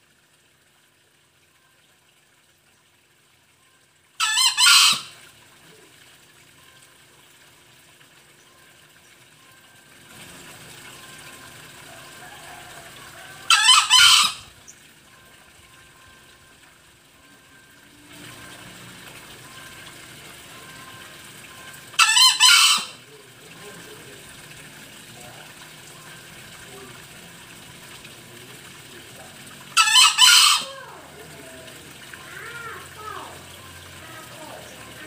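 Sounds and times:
rooster crowing: 11.9 - 14.5.

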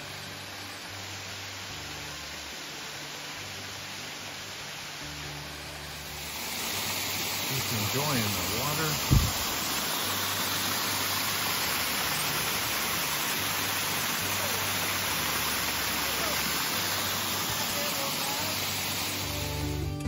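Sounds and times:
waterfall rushing over rocks: 0.0 - 20.0.

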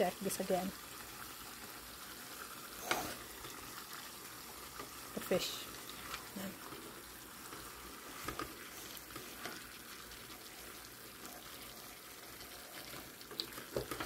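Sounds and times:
food hissing in a pot: 0.7 - 14.0
wooden spatula scraping a pot: 2.7 - 3.4, 5.9 - 9.8.

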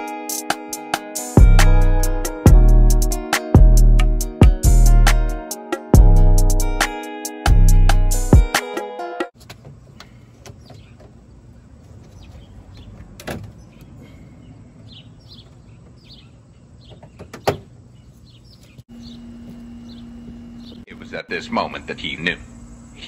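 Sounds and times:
birds chirping: 9.8 - 23.0.

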